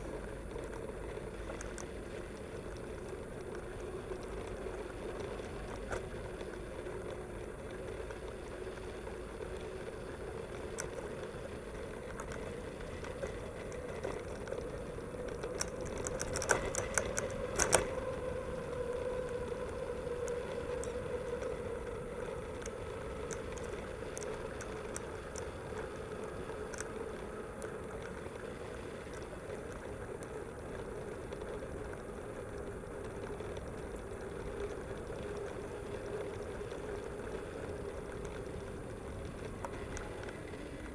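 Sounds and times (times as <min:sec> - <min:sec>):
bike tyres rolling: 0:00.0 - 0:40.9
sharp rattling clicks: 0:12.1 - 0:18.0.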